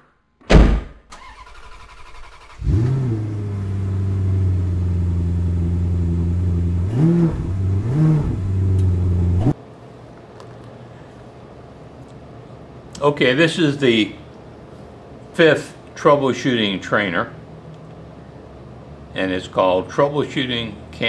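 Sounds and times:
loud thump: 0.4 - 1.1
car engine idling and revving: 2.2 - 9.6.

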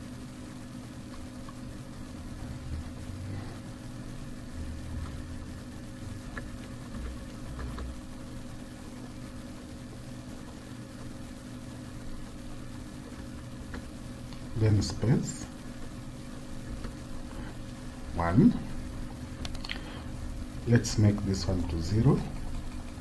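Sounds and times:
low background hum: 0.0 - 23.0
computer keyboard typing: 5.0 - 8.4, 13.0 - 14.0, 20.7 - 23.0.

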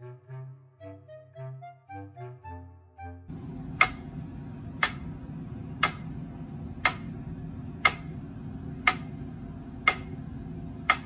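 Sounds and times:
guitar amplifier hum: 3.3 - 11.0
sharp clicks: 4.8 - 5.1, 6.8 - 7.2, 7.8 - 8.2, 8.8 - 9.2, 9.8 - 10.2.

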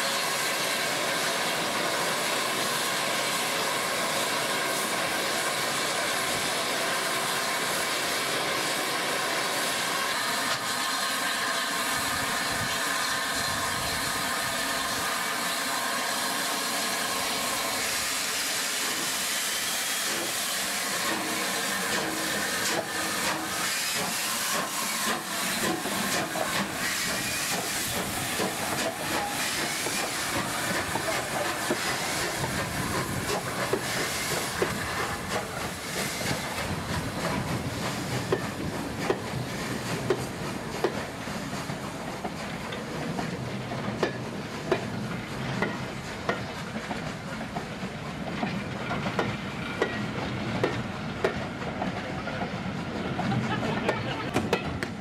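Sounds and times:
steam locomotive hissing: 0.0 - 55.0.

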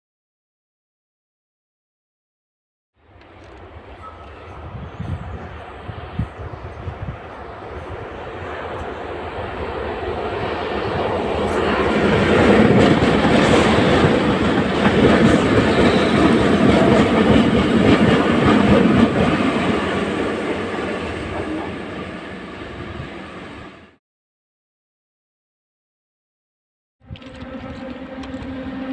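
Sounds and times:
train wheels clattering over rails: 11.4 - 21.8.

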